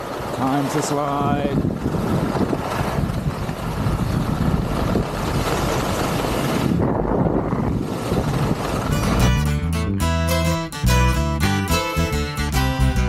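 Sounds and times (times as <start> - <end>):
wind on camera microphone: 1.0 - 9.3.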